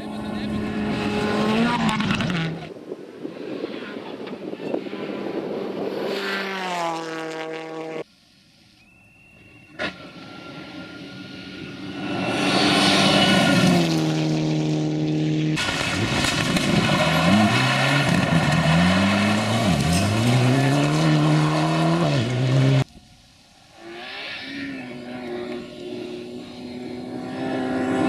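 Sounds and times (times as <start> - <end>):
rally car engine at full throttle: 0.0 - 8.0, 9.8 - 22.9, 23.6 - 28.0
fainter engine: 23.8 - 28.0.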